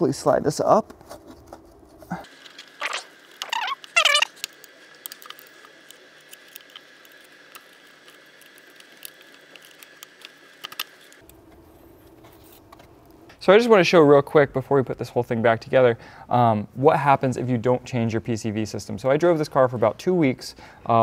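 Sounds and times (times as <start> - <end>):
short falling squeaks: 2.8 - 4.4.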